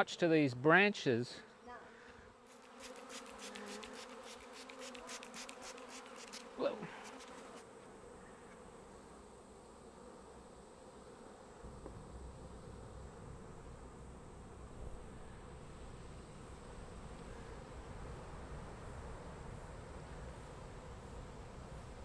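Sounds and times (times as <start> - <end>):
bee swarm buzzing: 1.4 - 22.0
bee zipping past: 2.3 - 12.8
spray bottle squirts: 2.5 - 7.6.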